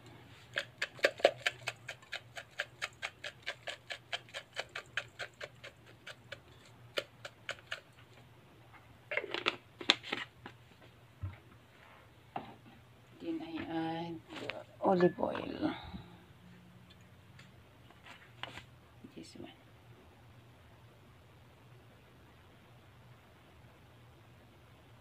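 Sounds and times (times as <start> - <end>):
salt shaker rattling: 0.4 - 7.9.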